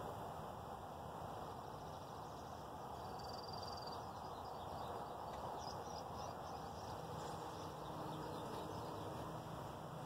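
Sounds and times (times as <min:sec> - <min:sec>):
steady low hiss: 0:00.0 - 0:10.0
distant bird chirps: 0:01.5 - 0:09.4.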